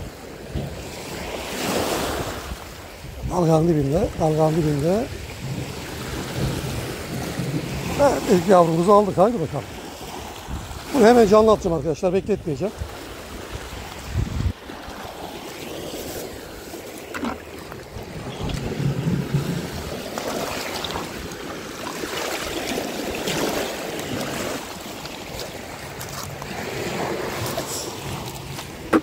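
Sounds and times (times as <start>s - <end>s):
seawater sloshing: 0.0s - 29.0s
small waves washing over stones: 0.1s - 3.1s, 4.2s - 11.4s, 12.7s - 29.0s
plastic bucket filling with water: 16.8s - 25.7s
pebbles crunching underfoot: 24.8s - 27.8s.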